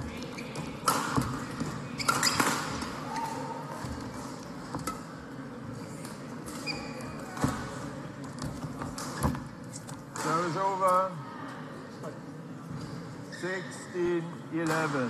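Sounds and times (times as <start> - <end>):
shoe squeaks on court floor: 0.2 - 1.2, 1.9 - 2.8, 6.5 - 7.4.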